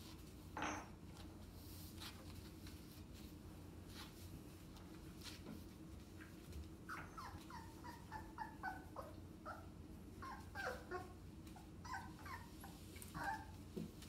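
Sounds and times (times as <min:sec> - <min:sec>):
puppy whimpering: 0:06.9 - 0:13.6.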